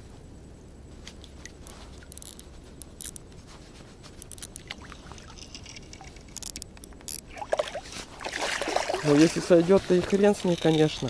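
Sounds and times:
fishing reel clicks: 0:02.0 - 0:03.2, 0:04.2 - 0:07.3
fish thrashing at surface: 0:07.2 - 0:11.0
water splashing against raft: 0:07.3 - 0:11.0.

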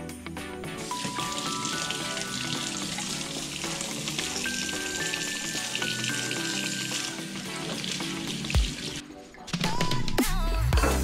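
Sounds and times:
background music: 0:00.0 - 0:11.0
tap water running onto hands: 0:00.8 - 0:09.0.

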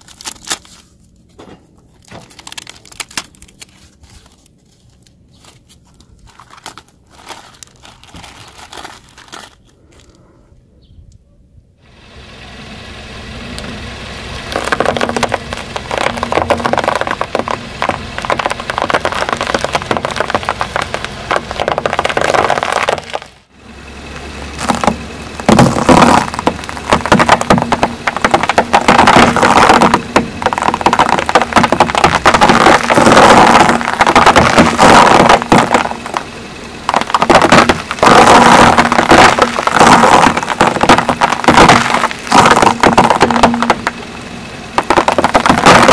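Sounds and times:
sugar cubes crunching under tyre: 0:00.0 - 0:10.2, 0:14.4 - 0:23.5, 0:24.4 - 0:45.9
car engine humming: 0:11.8 - 0:45.9.

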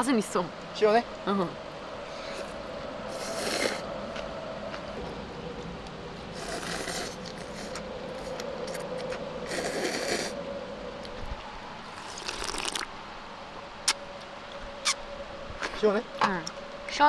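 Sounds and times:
faint steady hum: 0:00.0 - 0:17.0
noodles slurped: 0:03.1 - 0:03.8, 0:06.4 - 0:10.4, 0:11.9 - 0:12.9.

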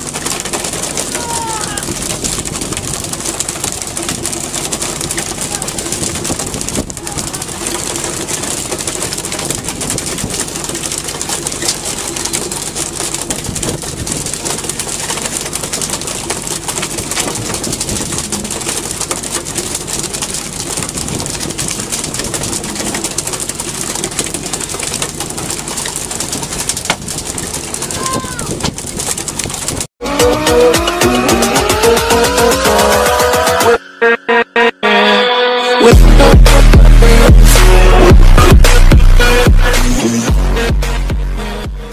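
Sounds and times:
knocks and slaps: 0:00.0 - 0:29.9
water: 0:00.0 - 0:30.0
boat engine: 0:00.0 - 0:41.9
wind: 0:00.0 - 0:41.9.

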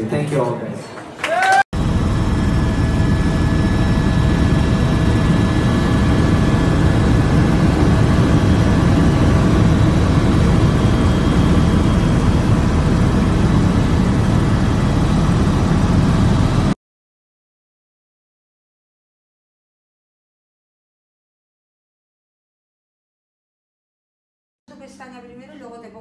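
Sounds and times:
aircraft cabin rumble: 0:01.8 - 0:16.8.

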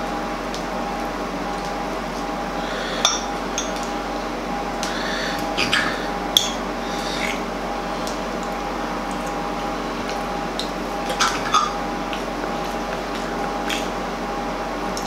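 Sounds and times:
steady background hum: 0:00.0 - 0:15.0.

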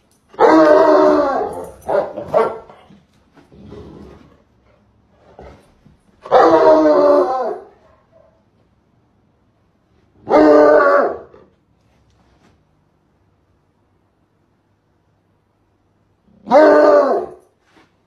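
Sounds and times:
dog barking: 0:01.9 - 0:02.8.

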